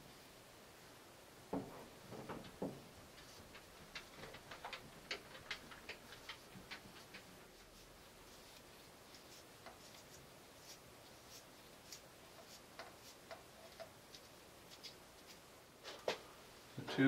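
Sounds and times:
thread tape ticks and crackles: 2.1s - 15.4s.

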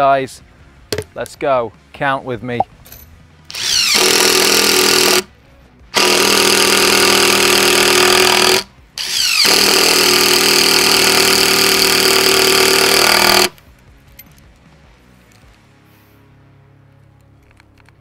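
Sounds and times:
impact driver driving screws: 3.5s - 5.3s, 6.0s - 13.6s.

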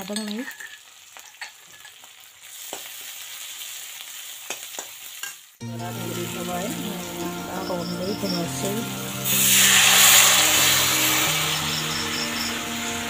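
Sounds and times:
onions sizzling in oil: 0.0s - 13.0s
background music: 5.6s - 13.0s.

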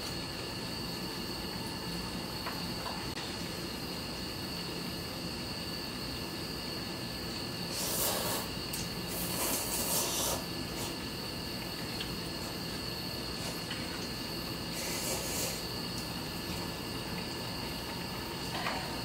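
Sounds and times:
crickets chirring: 0.0s - 19.0s
noodles slurped: 7.7s - 11.1s, 13.2s - 16.6s.

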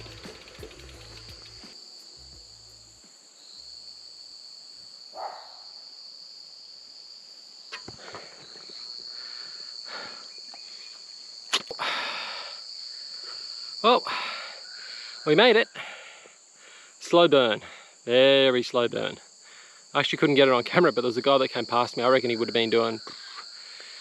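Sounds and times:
insects droning: 0.0s - 24.0s
heavy breathing: 7.9s - 10.4s, 11.8s - 15.2s, 15.8s - 17.0s, 19.4s - 19.9s, 23.1s - 24.0s.

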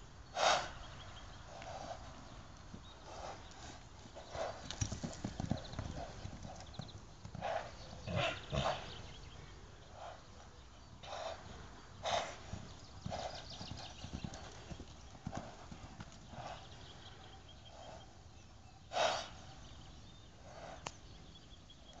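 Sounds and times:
horse blowing breath: 0.4s - 0.8s
hoofbeats thudding on sand: 1.5s - 9.4s, 12.0s - 18.0s.

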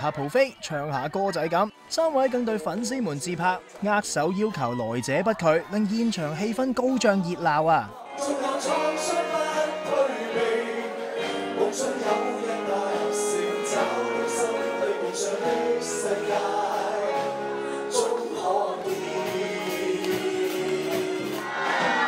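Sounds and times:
people singing in unison: 7.9s - 22.0s
live band playing: 8.1s - 22.0s.

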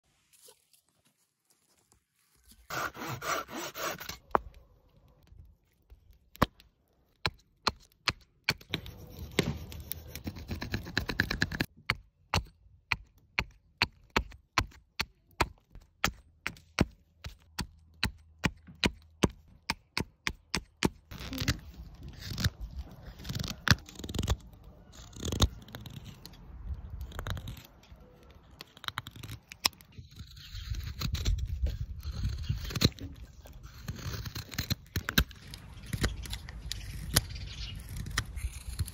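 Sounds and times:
knife scraping wood: 2.5s - 4.6s, 8.5s - 11.7s, 20.5s - 38.9s.

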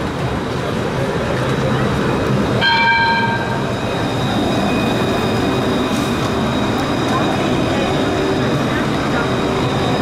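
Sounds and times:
tram passing: 0.0s - 10.0s
bell ring: 2.6s - 3.6s.

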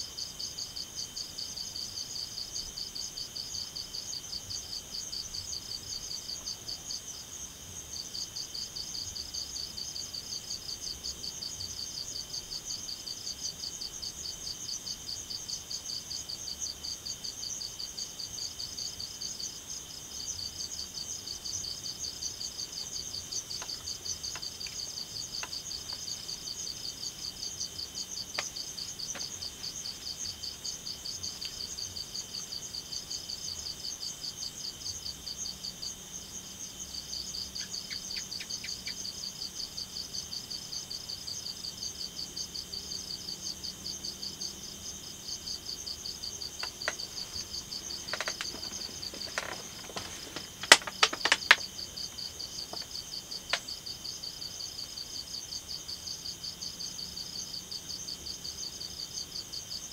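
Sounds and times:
fast pulsing insect trill: 18.3s - 59.9s
faint ticks: 22.8s - 26.2s, 46.6s - 53.7s
insects shrilling: 46.4s - 53.6s.

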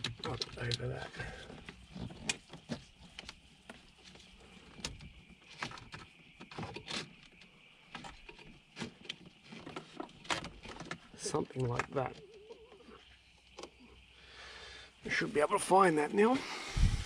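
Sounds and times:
cable clicks and rustles: 0.0s - 12.6s.

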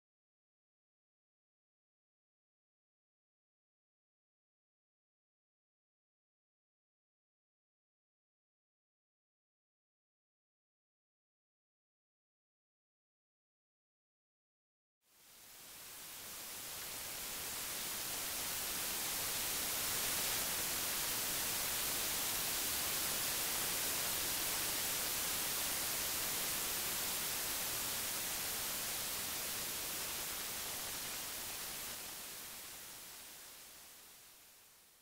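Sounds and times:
white noise hiss: 15.1s - 35.0s.

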